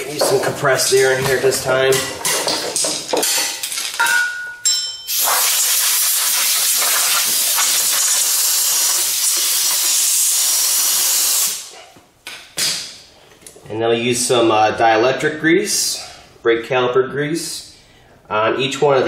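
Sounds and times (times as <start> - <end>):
compressed air blow gun hissing: 5.1 - 11.7.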